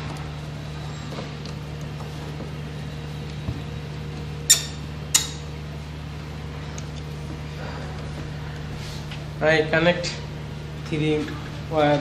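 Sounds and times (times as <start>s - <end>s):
steady low hum: 0.0s - 12.0s
sharp metallic switch clicks: 4.5s - 5.4s.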